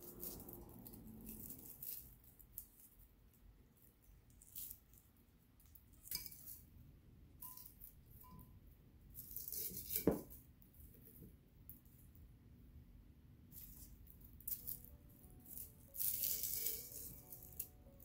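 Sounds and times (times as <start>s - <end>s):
dried leaves crackling and rustling: 0.0s - 2.9s, 13.6s - 17.8s.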